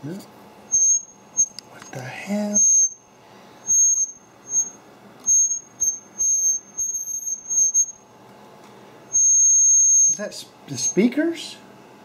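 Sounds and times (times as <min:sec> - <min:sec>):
high-pitched electronic whine: 0:00.7 - 0:01.6, 0:02.4 - 0:08.1, 0:09.1 - 0:11.1.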